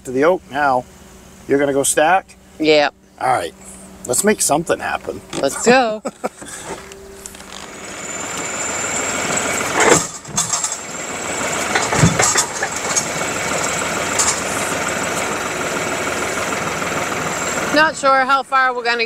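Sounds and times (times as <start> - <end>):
tractor diesel engine running: 0.0 - 19.0
sharp knocks: 11.6 - 13.2.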